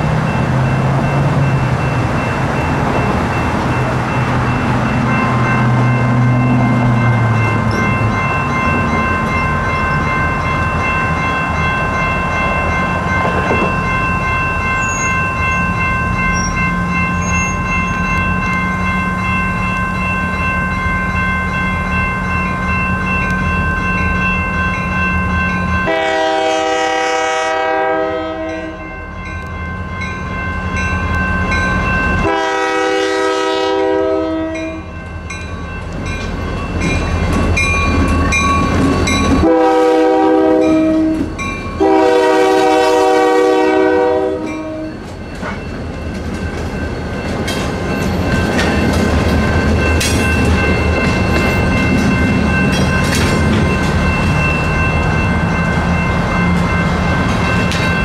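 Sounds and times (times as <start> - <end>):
train wheels clacking on rails: 0.0 - 20.6, 35.3 - 43.6, 44.4 - 58.0
crossing bells ringing: 0.0 - 58.0
locomotive horn blasts: 25.8 - 28.9, 32.2 - 34.9, 39.4 - 45.0.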